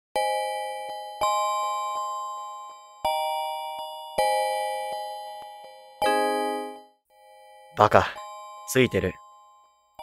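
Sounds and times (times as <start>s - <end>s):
bell-like chime chords: 5.6s - 6.9s.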